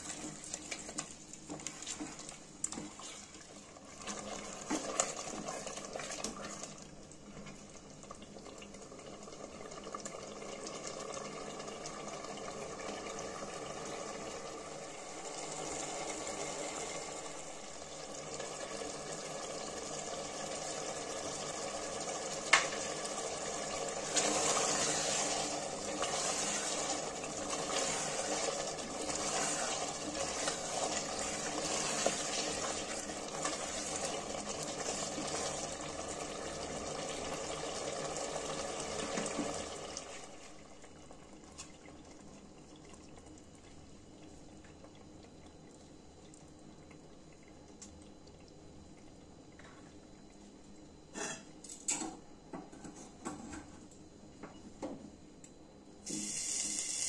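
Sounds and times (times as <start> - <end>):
gravy sizzling in hot oil: 9.3 - 40.6, 56.0 - 57.0.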